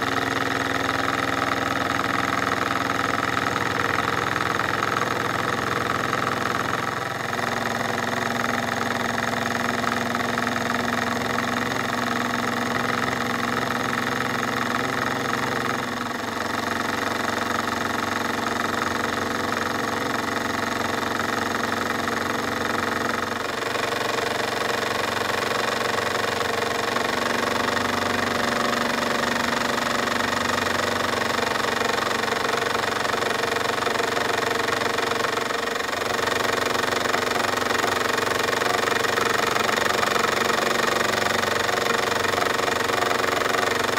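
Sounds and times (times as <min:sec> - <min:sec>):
model steam engine exhaust beats: 0:00.0 - 0:43.9
dynamo whirring: 0:14.8 - 0:43.9.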